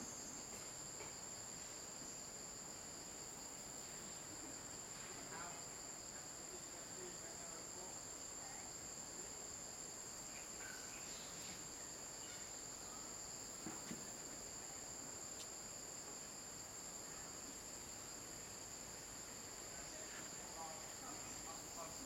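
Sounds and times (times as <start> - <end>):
high-pitched insect chorus: 0.0 - 22.0
faint knock: 13.6 - 14.1.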